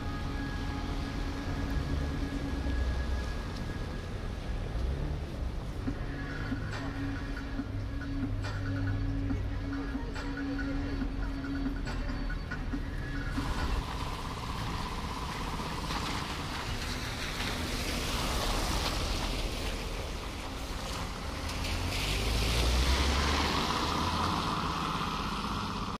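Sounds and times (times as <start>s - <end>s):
low engine rumble: 0.0s - 26.0s
tyres splashing through slush: 13.3s - 26.0s.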